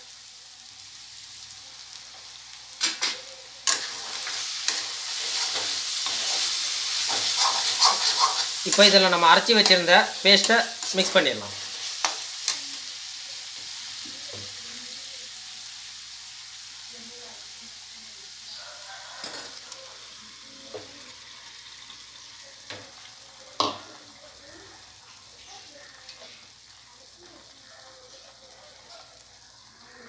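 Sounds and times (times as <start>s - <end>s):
chicken sizzling in pan: 0.0s - 30.0s
metal utensils clinking on pan: 2.8s - 11.3s, 19.2s - 19.6s.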